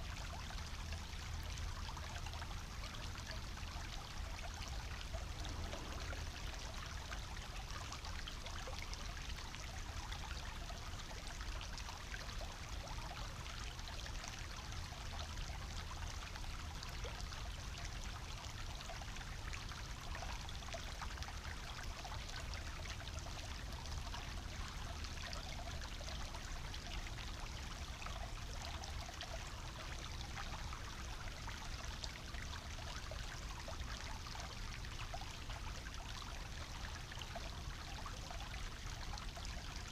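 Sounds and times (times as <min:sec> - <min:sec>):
brook bubbling over stones: 0:00.0 - 0:39.9.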